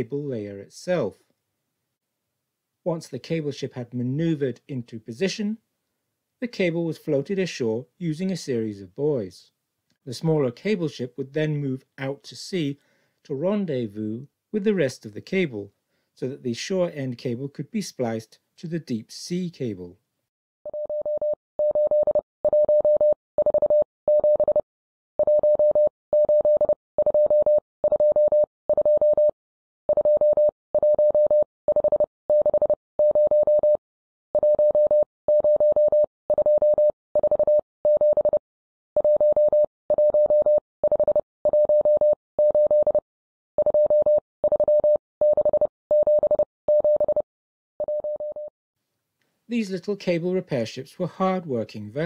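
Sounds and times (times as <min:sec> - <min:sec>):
morse code beeps: 0:20.7 - 0:24.6, 0:25.2 - 0:29.3, 0:29.9 - 0:33.8, 0:34.4 - 0:38.4, 0:39.0 - 0:43.0, 0:43.6 - 0:47.2, 0:47.8 - 0:48.5.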